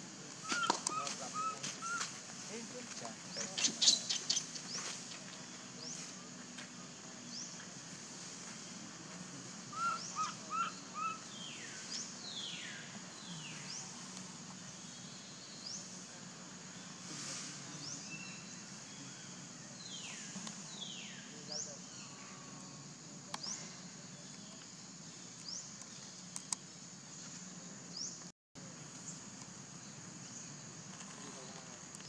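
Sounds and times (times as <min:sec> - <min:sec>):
high insect drone: 0:00.0 - 0:32.0.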